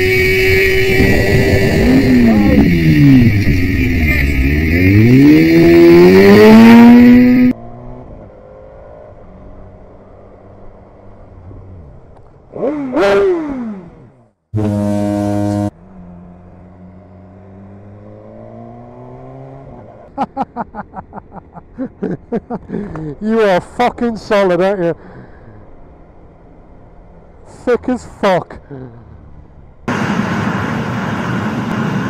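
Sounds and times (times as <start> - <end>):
motorcycle horn: 0.0 - 6.4, 14.6 - 15.7
motorcycle engine revving: 0.0 - 9.7, 11.4 - 20.0.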